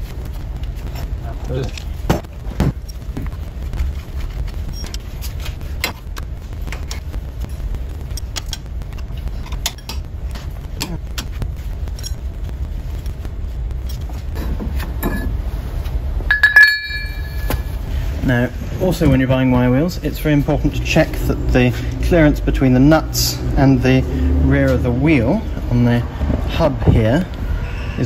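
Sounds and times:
steady low rumble: 0:00.0 - 0:28.0
light metallic clinks: 0:16.3 - 0:17.6
loud ringing metal clink: 0:16.3 - 0:17.8.

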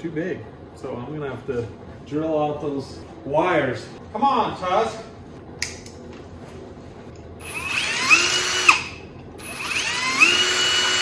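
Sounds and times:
electric drill whining: 0:07.4 - 0:11.0.

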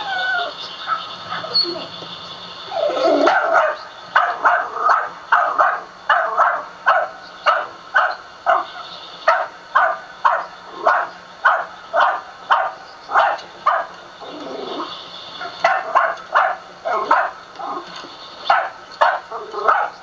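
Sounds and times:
small dog barking: 0:02.9 - 0:14.6, 0:15.4 - 0:17.8, 0:18.5 - 0:20.0.

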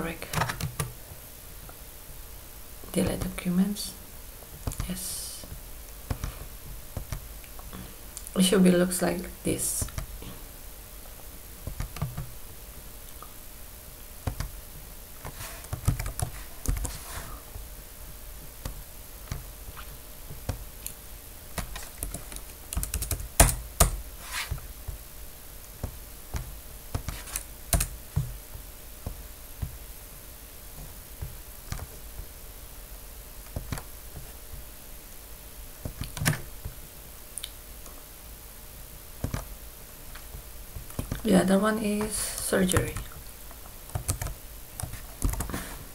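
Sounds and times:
keyboard keystrokes: 0:21.6 - 0:24.0, 0:26.4 - 0:28.3.

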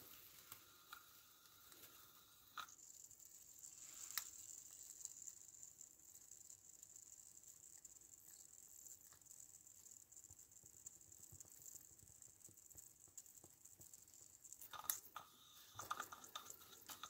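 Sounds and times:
high-pitched steam hiss: 0:00.0 - 0:05.7, 0:14.7 - 0:17.0
light irregular ticking: 0:00.0 - 0:17.0.

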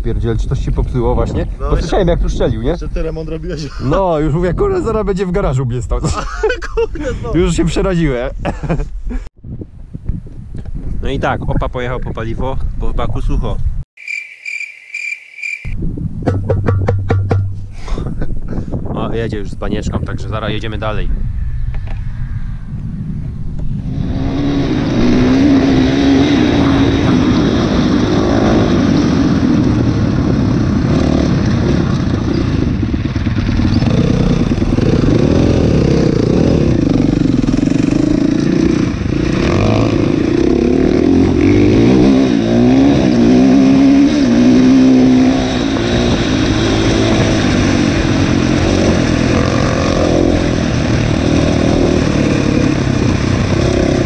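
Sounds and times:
dirt bike engine revving: 0:23.8 - 0:54.0.

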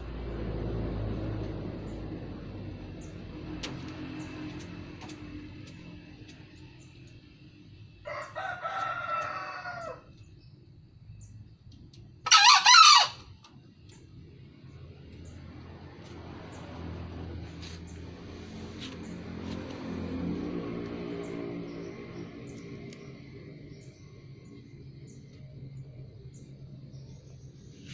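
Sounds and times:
junglefowl crowing: 0:08.1 - 0:10.1, 0:12.2 - 0:13.4
lower fowl call: 0:12.3 - 0:13.3.

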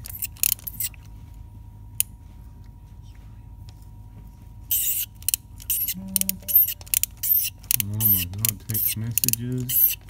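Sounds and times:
steady low hum: 0:00.0 - 0:10.0
ratchet click: 0:04.7 - 0:10.0
ratchet rasp: 0:04.7 - 0:10.0.

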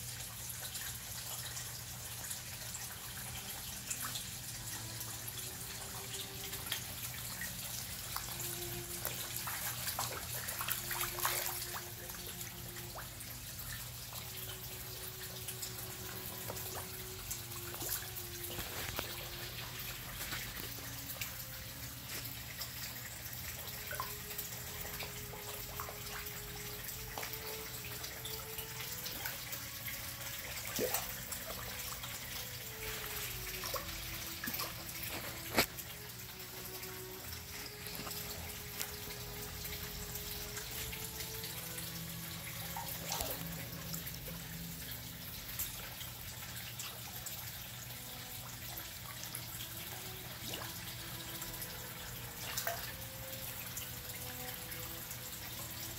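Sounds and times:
pond water trickling: 0:00.0 - 0:55.9.

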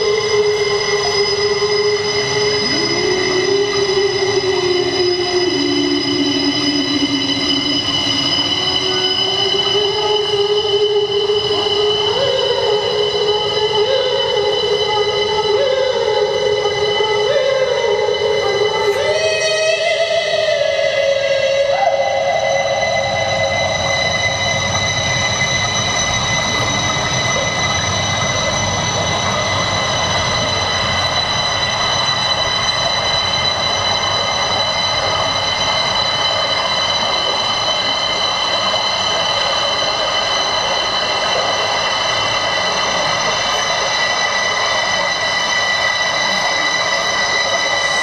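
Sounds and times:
high held tones: 0:00.0 - 0:48.0.

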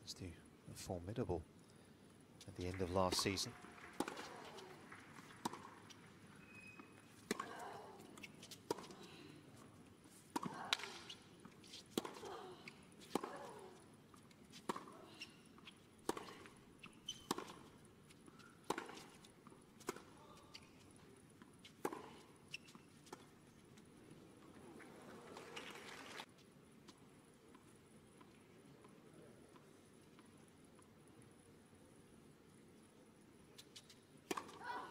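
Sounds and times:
shoes squeaking on court: 0:02.9 - 0:27.0, 0:33.5 - 0:34.9
racket striking tennis ball: 0:34.2 - 0:34.7.

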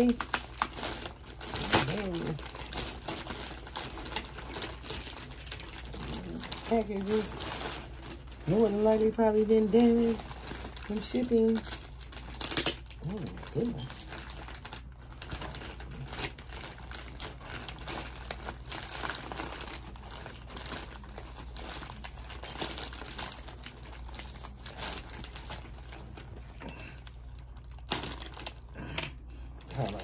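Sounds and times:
plastic packaging crinkling: 0:00.0 - 0:30.0.

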